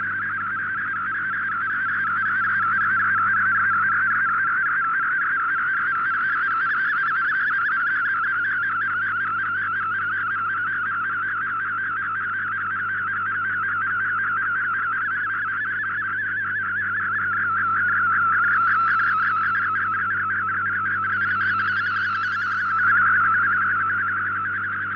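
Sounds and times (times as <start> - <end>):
warbling digital radio tone: 16.8 - 24.9.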